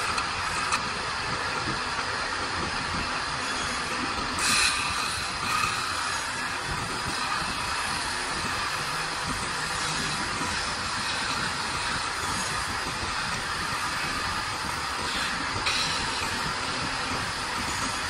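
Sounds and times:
abrasive hissing on spinning wood: 0.0 - 18.0
wood lathe running: 0.0 - 18.0.

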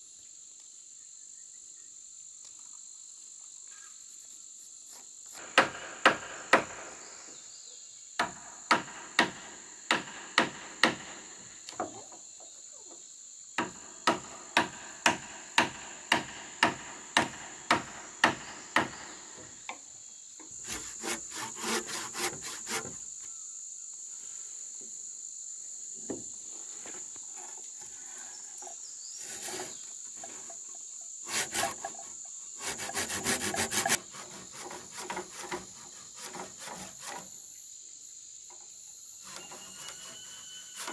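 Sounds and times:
insects buzzing: 0.0 - 40.9
hand saw cutting wood: 20.5 - 23.1, 29.2 - 30.6, 31.2 - 37.4, 39.2 - 40.9.

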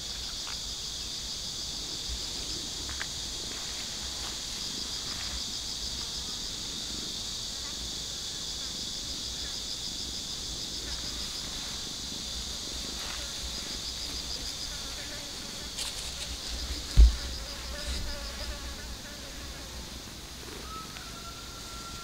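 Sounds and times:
insects trilling: 0.0 - 22.0
low thump: 16.9 - 18.2.

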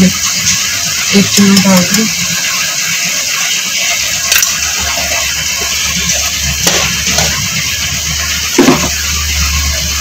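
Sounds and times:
meat sizzling in oil: 0.0 - 10.0
metal spatula knocking on pan: 8.6 - 9.0.

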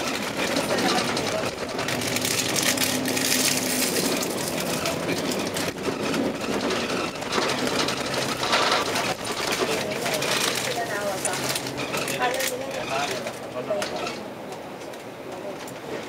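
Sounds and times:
clicks and rattles: 0.0 - 14.2
vehicle engine and road noise: 0.0 - 16.0.

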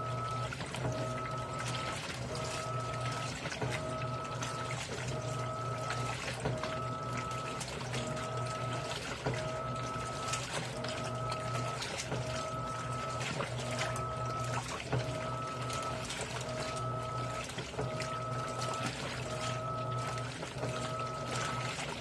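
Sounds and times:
washing machine motor whining: 0.0 - 22.0
water churning and sloshing: 0.0 - 22.0.

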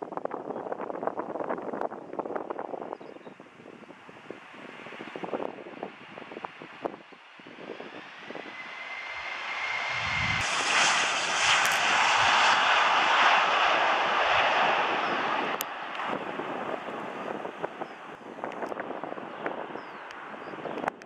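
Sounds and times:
jet engines roaring at takeoff: 3.5 - 21.0
rising fan whine: 3.6 - 19.7.

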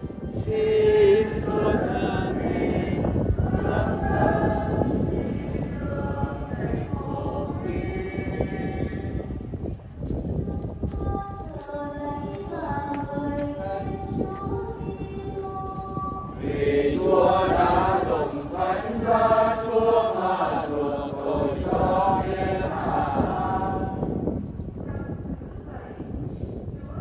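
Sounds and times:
steady low rumble: 0.0 - 14.8, 15.4 - 27.0
congregation singing a hymn: 0.4 - 9.5, 16.0 - 24.4.

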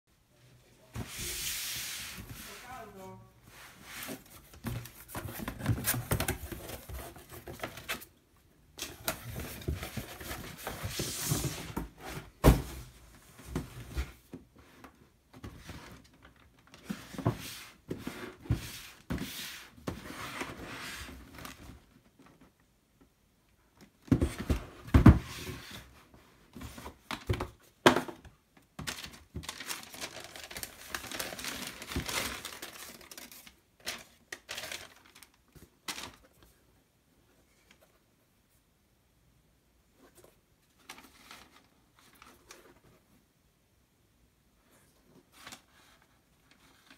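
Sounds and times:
tissue paper crinkling: 28.9 - 36.2.

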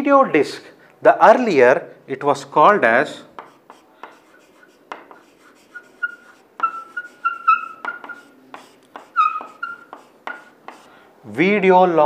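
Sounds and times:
chalk tapping and scratching: 3.3 - 11.0
chalk squeaks: 3.4 - 11.0.

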